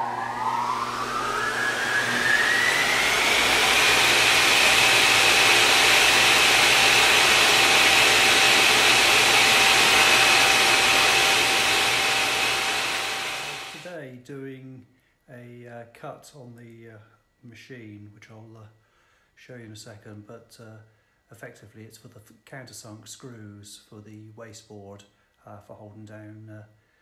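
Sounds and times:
loud rushing noise: 0.0 - 5.0
high whine rising in pitch: 0.0 - 13.8.

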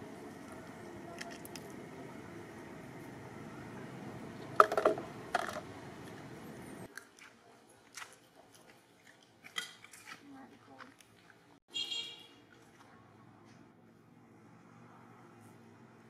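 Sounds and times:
plastic cup clattering on concrete: 4.6 - 5.6.

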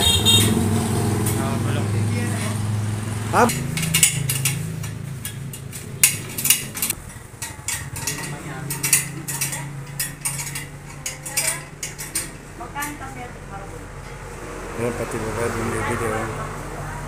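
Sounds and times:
metallic clinks of hand tools: 3.5 - 12.4.

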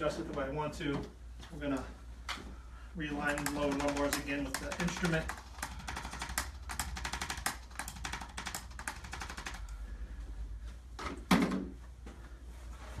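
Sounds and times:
adjusting instrument clicking taps: 3.3 - 8.0.

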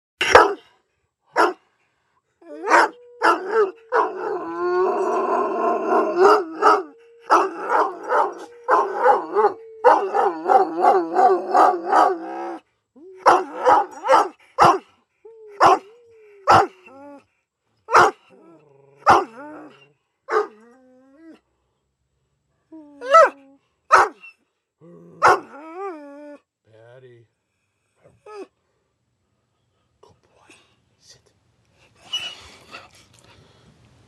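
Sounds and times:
dog barking: 0.2 - 0.6, 1.3 - 1.6, 2.7 - 4.2, 6.2 - 12.3, 13.2 - 14.9, 15.6 - 15.9, 16.5 - 16.8, 17.9 - 18.2, 19.0 - 19.4, 20.3 - 20.6, 23.1 - 24.2, 25.2 - 25.5
dog howling: 2.4 - 17.2, 17.9 - 21.4, 22.8 - 24.2, 24.8 - 26.4.

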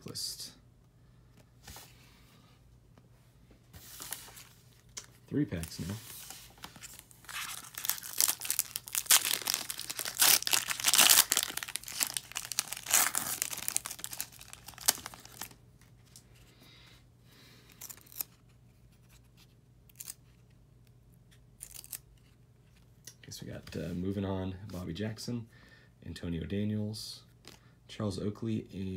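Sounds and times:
foil wrapper tearing and crinkling: 6.8 - 15.6, 17.7 - 18.4, 21.6 - 22.0.

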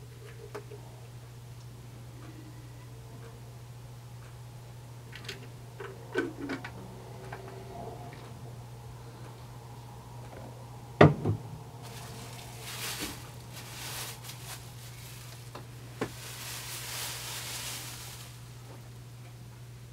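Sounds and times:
steady low hum: 0.0 - 19.9
plastic bag crinkling: 11.8 - 18.7.

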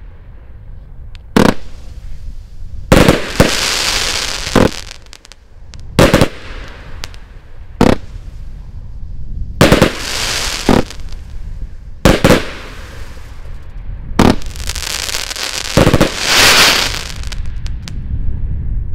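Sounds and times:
fireworks cake bangs: 9.6 - 11.1, 12.0 - 12.8, 14.2 - 17.5.

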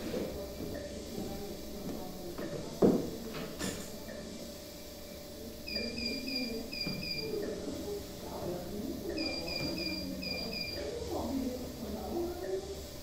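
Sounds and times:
medical monitor alarm beeping: 5.6 - 7.6, 9.0 - 11.2.

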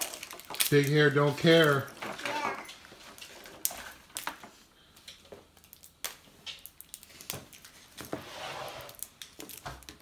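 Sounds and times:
packaging crinkle: 0.0 - 4.6, 5.6 - 8.2
toy packages clicking and rustling: 0.0 - 8.1, 8.9 - 10.0.

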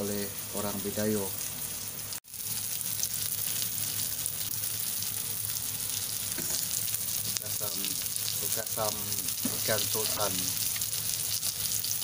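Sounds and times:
fish frying in oil: 0.0 - 12.0.

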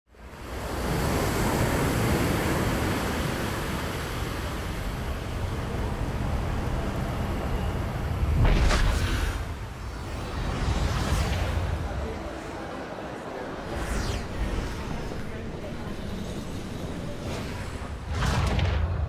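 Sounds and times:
ocean surf rushing: 0.3 - 18.4
loud whoosh: 8.2 - 19.0.

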